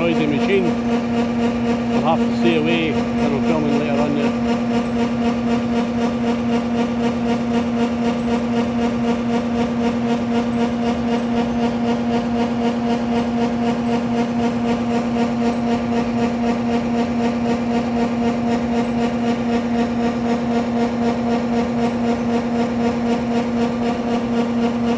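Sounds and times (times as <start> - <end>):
combine harvester drone: 0.0 - 24.9.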